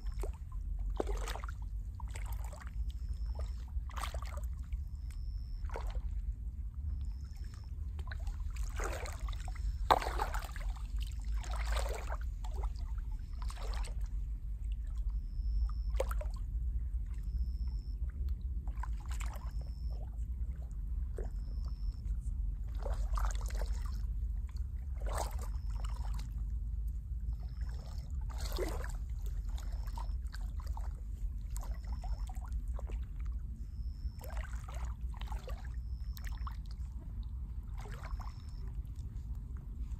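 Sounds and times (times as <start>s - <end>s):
steady low rumble: 0.0s - 39.9s
mud squelching around legs: 8.6s - 12.6s.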